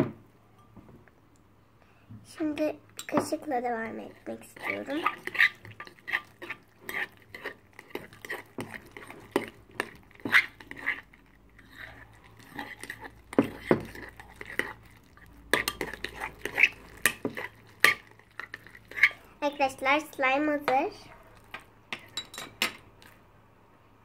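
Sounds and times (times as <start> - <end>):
spoon scraping glass bowl: 4.1 - 19.3.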